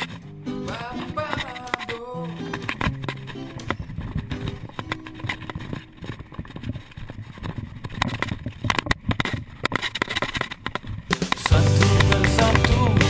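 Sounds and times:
bike clicks and knocks: 0.0 - 13.0
tyre noise: 0.0 - 13.0
wind noise: 2.7 - 11.1.

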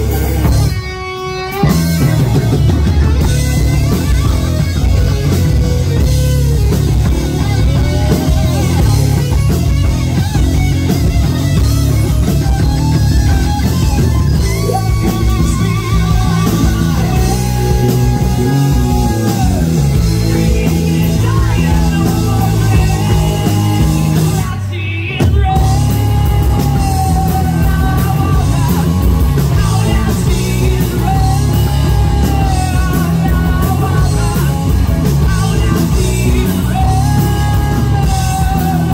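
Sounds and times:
bass guitar: 0.0 - 38.9
distorted electric guitar: 0.0 - 38.9
drums: 0.0 - 38.9
person singing into microphone: 14.3 - 38.9.

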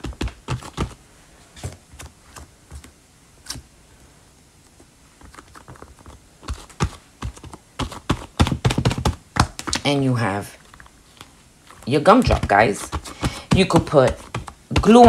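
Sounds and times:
hands patting clay: 5.2 - 10.0, 11.2 - 15.0.

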